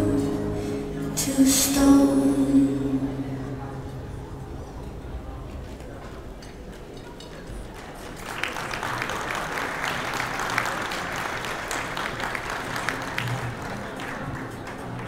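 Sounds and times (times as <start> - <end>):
audience applauding: 7.5 - 15.0.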